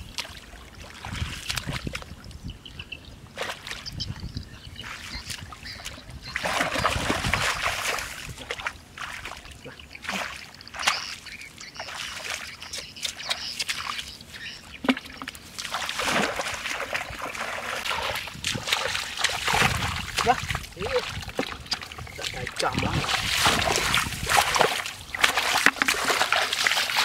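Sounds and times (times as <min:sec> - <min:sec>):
hands splashing in muddy water: 0:14.8 - 0:27.0
sharp splats: 0:14.8 - 0:27.0.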